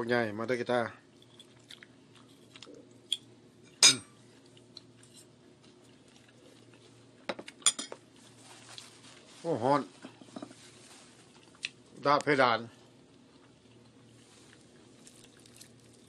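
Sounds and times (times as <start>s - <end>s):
low steady hum: 0.0s - 16.0s
faint chewing: 1.1s - 3.3s, 4.2s - 9.3s, 10.9s - 11.8s, 12.8s - 16.0s
fork clinking against plate: 3.7s - 4.1s.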